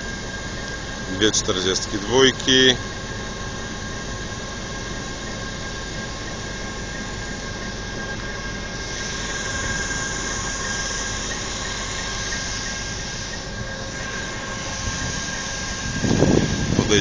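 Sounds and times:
diesel locomotive engine idling: 0.0 - 17.0
high whine: 0.0 - 17.0
air hiss: 7.9 - 17.0.

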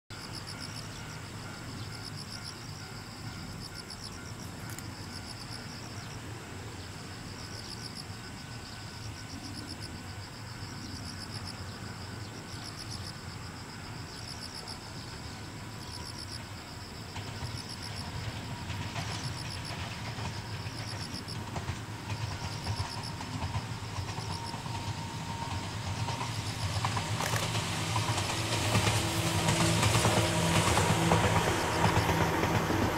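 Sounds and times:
insects chirping: 0.1 - 32.9.

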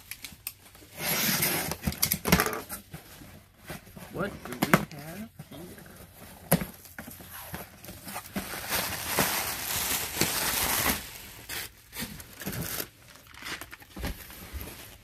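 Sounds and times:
cardboard rustling: 2.6 - 15.0
plastic wrapping crinkling: 3.8 - 15.0.

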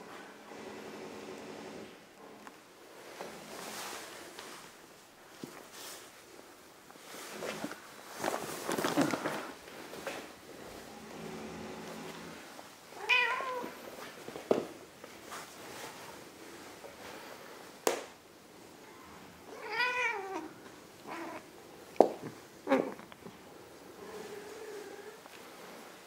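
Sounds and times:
cat meowing: 13.0 - 13.8, 19.5 - 21.4.

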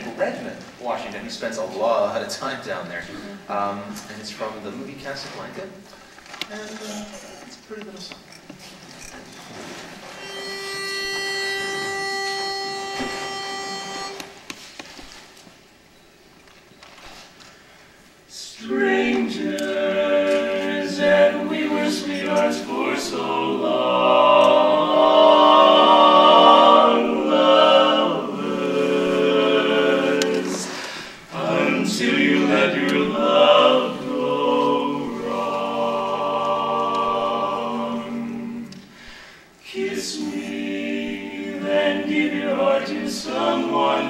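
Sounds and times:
male quartet singing a cappella: 18.3 - 44.0.

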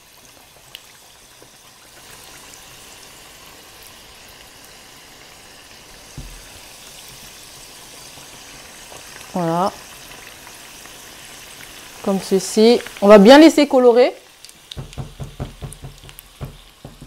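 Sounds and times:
pastries sizzling in hot oil: 0.0 - 17.0
dull knock: 6.2 - 6.5, 14.7 - 17.0.

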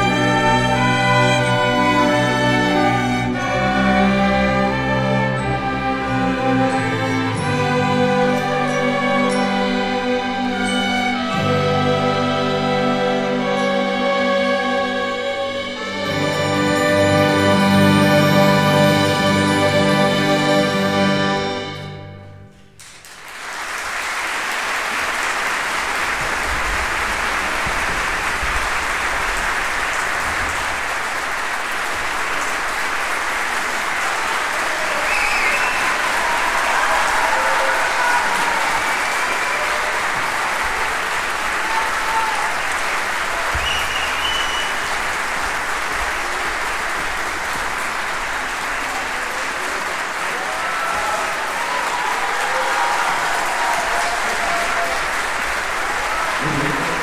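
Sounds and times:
audience applauding: 0.0 - 22.0, 22.8 - 57.0
orchestra chord: 0.0 - 22.6.

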